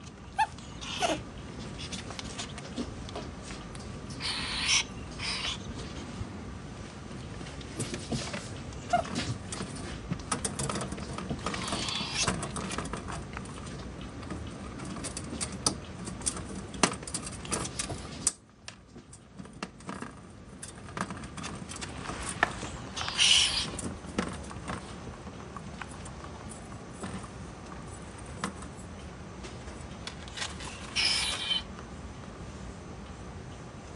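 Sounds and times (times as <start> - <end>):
claws scrabbling on wire cage: 7.1 - 18.4, 19.1 - 31.7
small clicks and rattles: 7.2 - 31.0.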